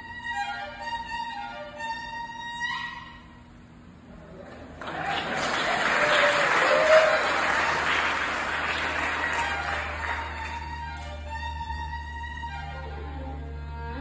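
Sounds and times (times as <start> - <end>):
violin: 0.0 - 3.4, 8.8 - 14.0
audience applauding: 4.4 - 11.2.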